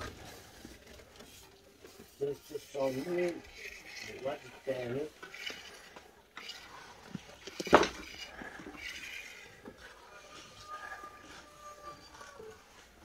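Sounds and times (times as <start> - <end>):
building work knocks and clatter: 5.1 - 10.0.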